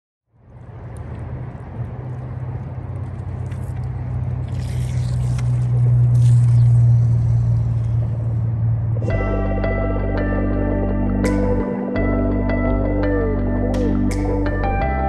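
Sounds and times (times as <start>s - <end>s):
low rumble: 0.3s - 15.0s
hissy water splashes: 2.5s - 8.1s.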